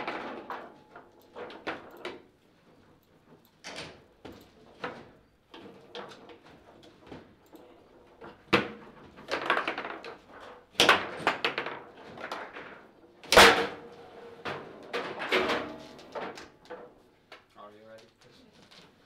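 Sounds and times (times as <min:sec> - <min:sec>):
foosball rods rattling: 0:09.1 - 0:12.8.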